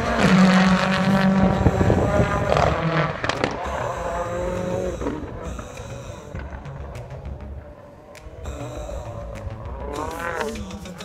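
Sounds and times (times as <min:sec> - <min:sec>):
exhaust cracks and pops: 0:00.0 - 0:03.6, 0:06.3 - 0:08.5
rally car engine revving: 0:00.0 - 0:11.0.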